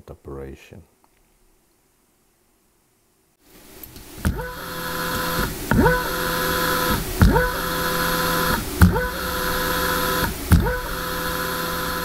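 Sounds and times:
servo motor whine: 3.6s - 12.0s.

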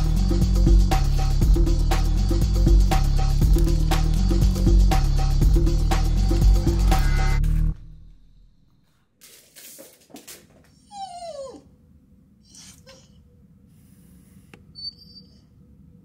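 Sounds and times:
dog whining: 10.7s - 11.8s, 12.4s - 13.3s, 14.7s - 15.6s
brief high squeak: 14.8s - 15.4s.

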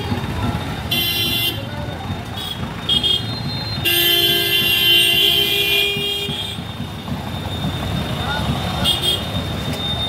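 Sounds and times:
traffic noise: 0.0s - 10.0s
vehicle horns honking: 0.9s - 1.7s, 2.4s - 6.7s, 8.8s - 9.4s.

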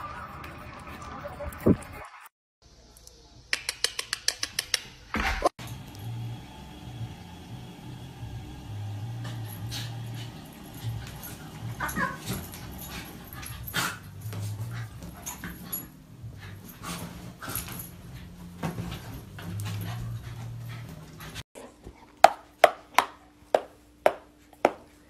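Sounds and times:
dog whining: 11.6s - 12.5s.

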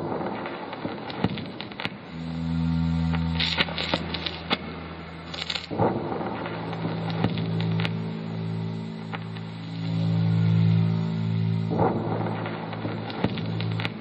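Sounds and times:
hiss and crackle: 0.0s - 14.0s
low droning tones: 2.0s - 14.0s
scattered clicks: 11.7s - 14.0s.

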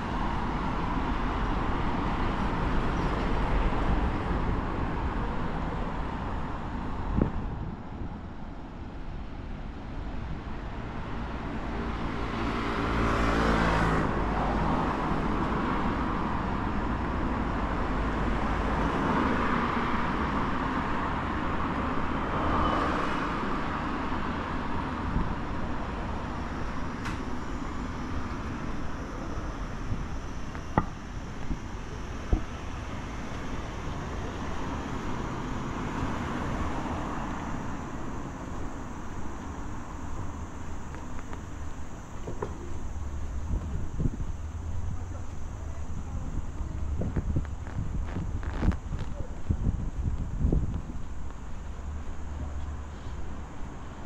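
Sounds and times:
vehicles passing by: 0.0s - 54.0s.

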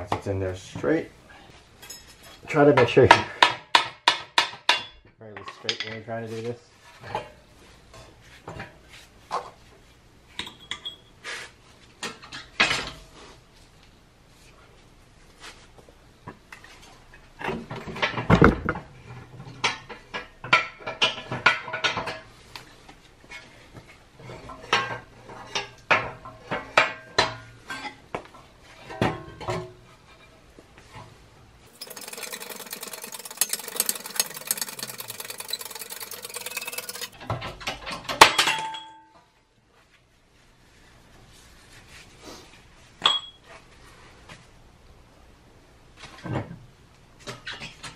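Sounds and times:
dense clatter: 31.7s - 37.2s.

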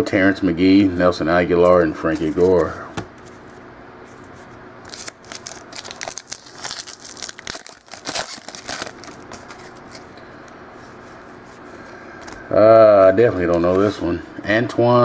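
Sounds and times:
foil wrapper tearing and crinkling: 4.8s - 10.1s.

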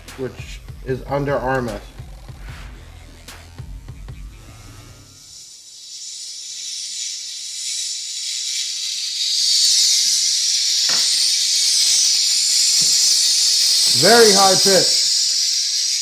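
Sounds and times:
tweeter high-pitched hiss: 3.4s - 16.0s.

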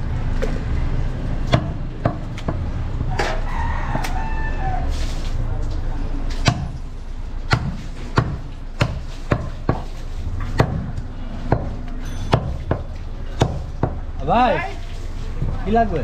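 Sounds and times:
knife chopping meat and bone: 1.4s - 2.6s, 6.4s - 6.8s, 7.5s - 14.1s.

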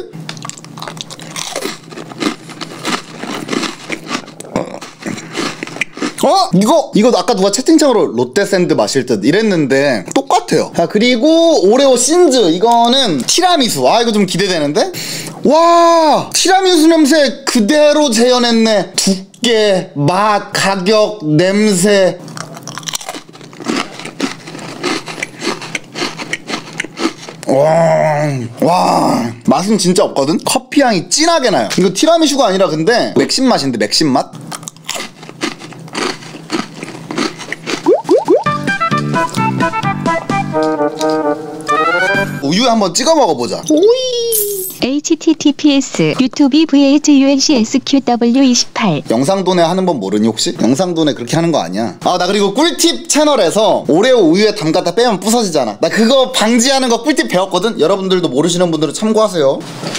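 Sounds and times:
cookie crunching while chewed: 0.2s - 6.7s, 22.2s - 27.5s, 34.4s - 38.4s.

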